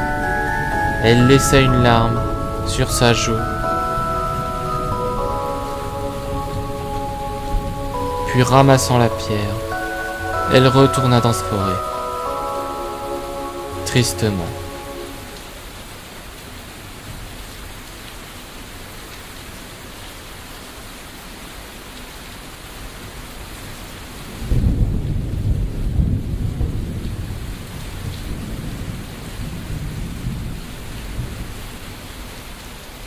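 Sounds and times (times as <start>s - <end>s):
steady rain falling: 0.0s - 33.0s
thunder rumbling: 24.4s - 31.6s.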